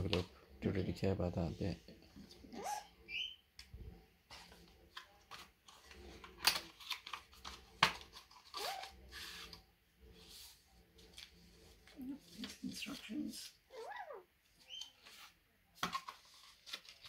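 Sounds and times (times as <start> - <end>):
paper envelope rustling: 11.0 - 13.4, 14.7 - 17.0.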